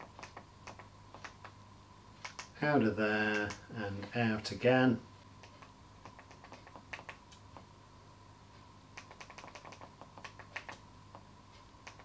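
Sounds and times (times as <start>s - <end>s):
faint sharp clicks: 0.1s - 1.6s, 2.2s - 2.6s, 3.3s - 4.2s, 5.4s - 7.7s, 9.0s - 12.0s.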